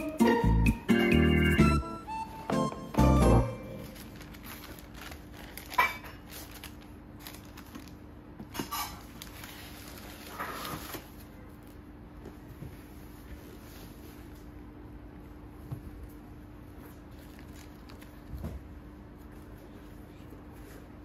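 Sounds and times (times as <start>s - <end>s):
tissue paper and plastic crinkling: 3.6s - 11.9s, 16.8s - 21.0s.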